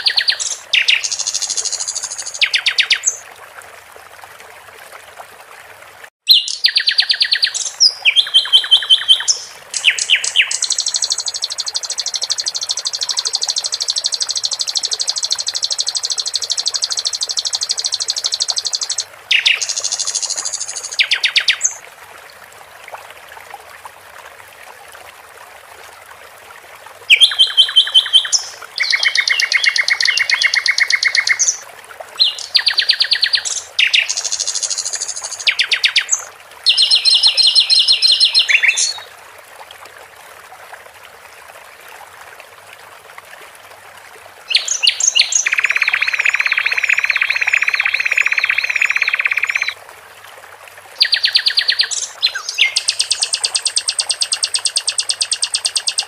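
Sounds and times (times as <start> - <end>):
trickle of water: 0.0 - 56.0
songbird trilling: 6.3 - 21.8, 27.1 - 31.6, 32.2 - 39.0, 44.5 - 49.8, 51.0 - 56.0.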